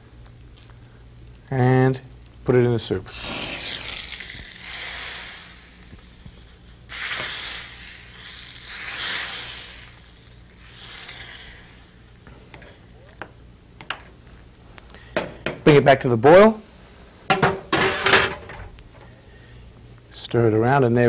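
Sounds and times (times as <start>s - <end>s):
hot oil sizzling in soup: 2.9s - 13.3s.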